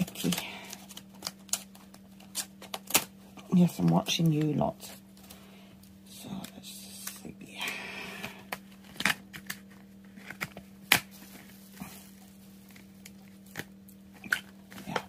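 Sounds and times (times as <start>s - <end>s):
packaging crinkling: 0.0s - 5.4s.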